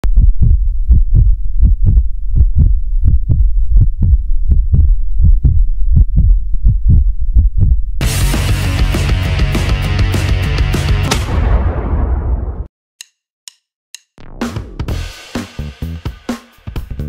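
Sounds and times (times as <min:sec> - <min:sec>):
deep thudding beat: 0:00.0 - 0:12.1
loud full music: 0:08.0 - 0:11.5, 0:14.4 - 0:17.0.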